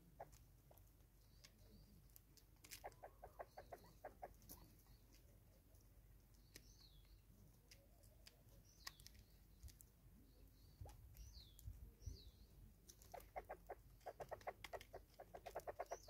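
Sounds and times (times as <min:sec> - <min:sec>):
small bird chirping: 0:00.0 - 0:16.0
spurfowl clucking: 0:02.6 - 0:04.9, 0:13.0 - 0:16.0.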